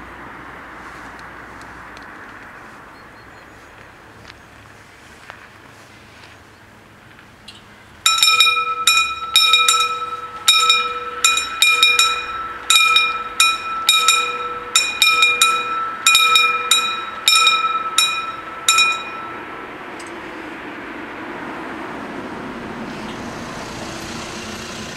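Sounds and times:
level-crossing warning bells ringing: 8.0 - 20.7.

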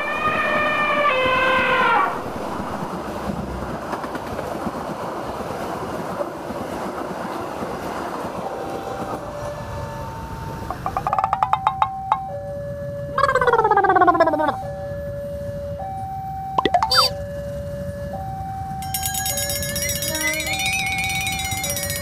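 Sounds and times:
train horn: 0.0 - 2.2
train wheels on rails: 0.2 - 12.3, 18.8 - 22.0.

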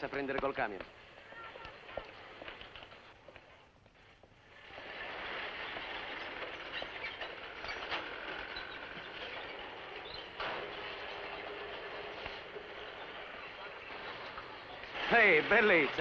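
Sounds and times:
truck engine: 4.4 - 16.0.

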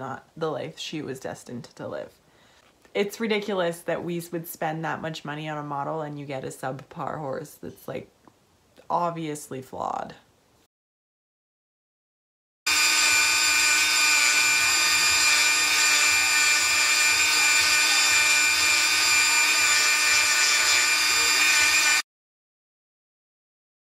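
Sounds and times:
rotary tool grinding plastic: 12.7 - 22.0.

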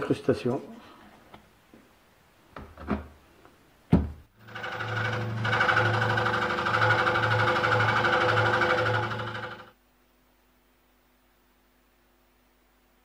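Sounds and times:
electric scroll saw running: 4.4 - 9.8.

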